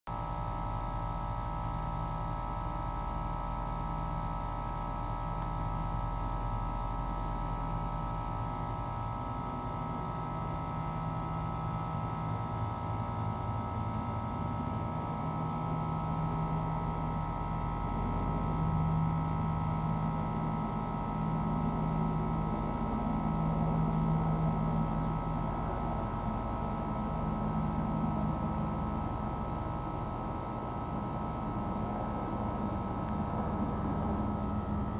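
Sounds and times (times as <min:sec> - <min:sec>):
distant helicopter droning: 0:21.4 - 0:34.9.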